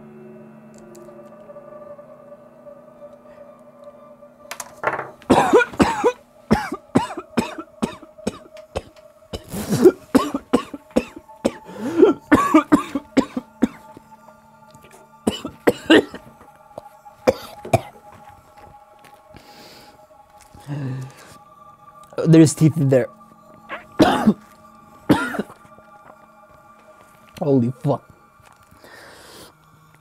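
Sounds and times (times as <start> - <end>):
man coughing and gagging: 5.3 - 13.8, 15.3 - 16.3, 17.3 - 17.9, 23.7 - 24.4, 25.1 - 25.6.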